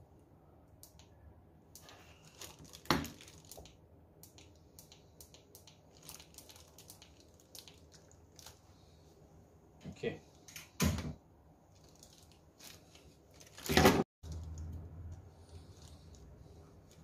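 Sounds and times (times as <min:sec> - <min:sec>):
plastic film crinkling: 0:01.8 - 0:03.8, 0:04.4 - 0:08.8, 0:11.7 - 0:17.0.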